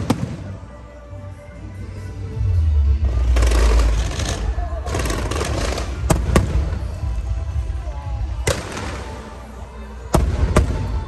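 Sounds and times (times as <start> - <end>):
fireworks bangs: 0.0 - 0.6, 3.2 - 7.4, 8.4 - 9.4, 10.2 - 11.0
steady noisy background: 0.0 - 11.0.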